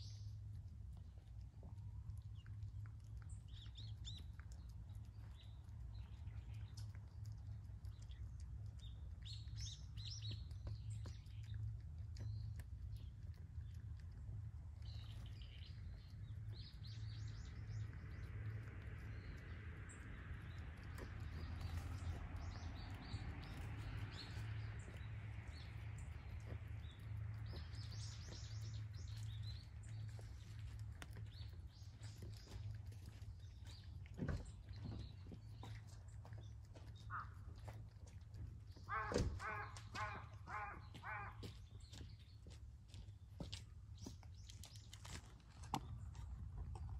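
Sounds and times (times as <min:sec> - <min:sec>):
cats eating from bowls: 0:00.0 - 0:46.9
small birds chirping: 0:00.0 - 0:46.9.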